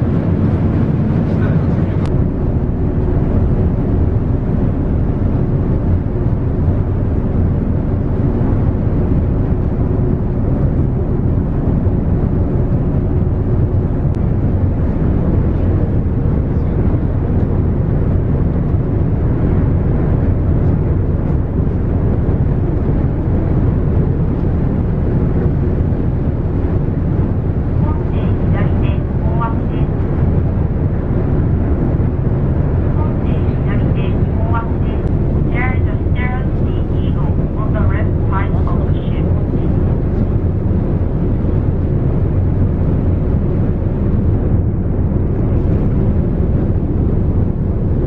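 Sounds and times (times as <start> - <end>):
ship engine rumble: 0.0 - 48.0.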